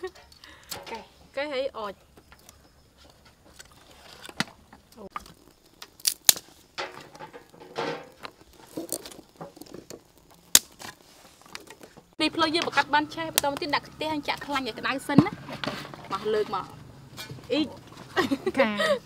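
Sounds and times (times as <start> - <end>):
wood fire cracking: 2.0 - 18.2
twigs rustling and snapping: 2.3 - 14.6.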